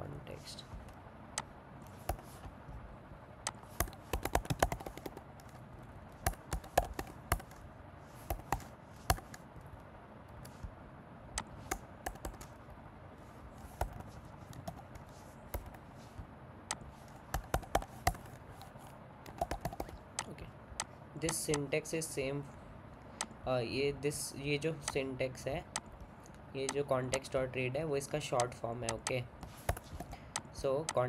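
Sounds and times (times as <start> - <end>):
computer keyboard typing: 1.9 - 2.5, 3.5 - 5.6, 6.2 - 7.6, 8.2 - 9.4, 11.4 - 12.6, 13.6 - 15.8, 16.7 - 21.7, 28.4 - 31.0.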